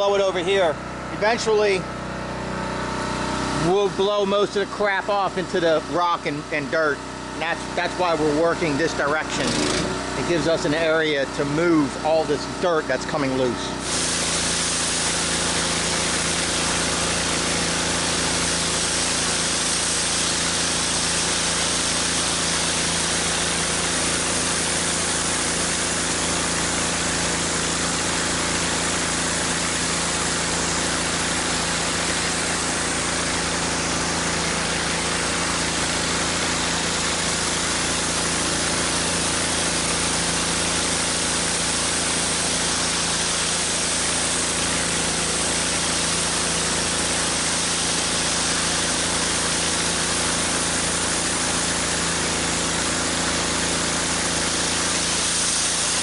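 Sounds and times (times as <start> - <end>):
pressure washer engine humming: 0.0 - 56.0
water spray hissing on concrete: 13.8 - 56.0.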